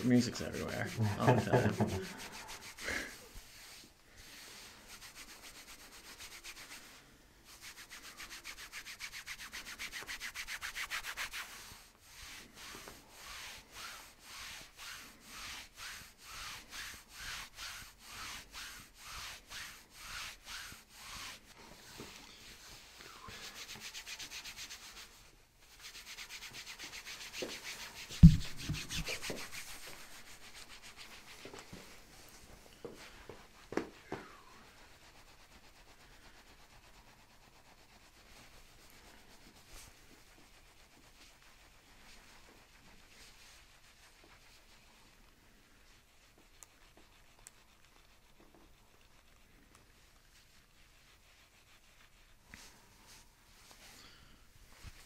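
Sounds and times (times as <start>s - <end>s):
hands rubbing on shirt fabric: 0.0s - 55.0s
sharp thump: 28.1s - 29.1s.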